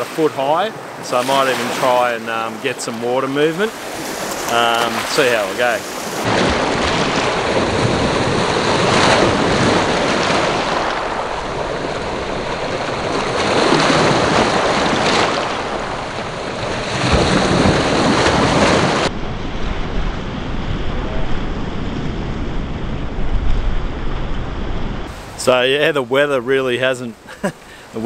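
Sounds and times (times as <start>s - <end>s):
waves washing on pebble shore: 0.0s - 19.1s
wind buffeting microphone: 2.3s - 25.4s.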